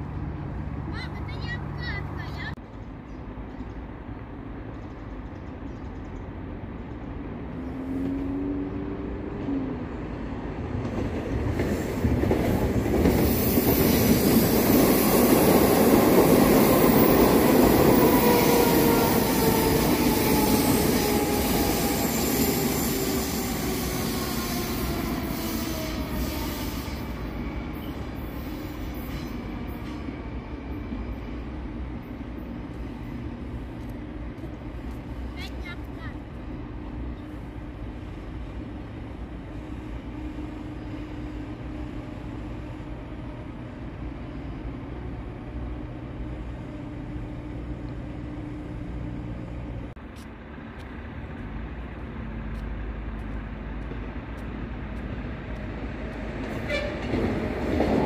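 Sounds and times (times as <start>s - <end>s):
train wheels rumbling on rail: 2.6s - 58.0s.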